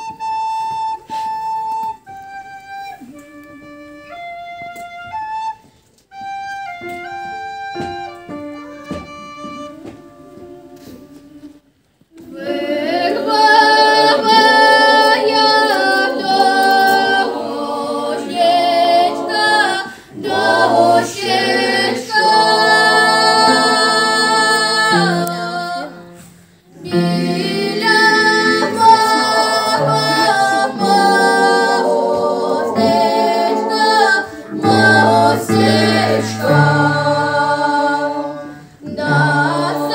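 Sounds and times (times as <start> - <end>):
solo instrumental melody: 0.0 - 39.9
mixed choir singing in harmony: 10.4 - 39.9.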